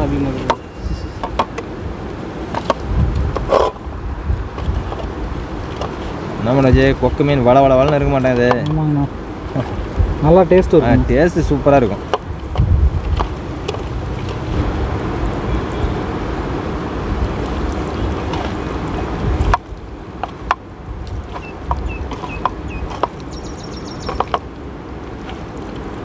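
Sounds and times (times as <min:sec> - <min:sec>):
wind: 0:00.0 - 0:26.0
river water rushing: 0:13.3 - 0:26.0
short bird chirps: 0:21.4 - 0:24.2.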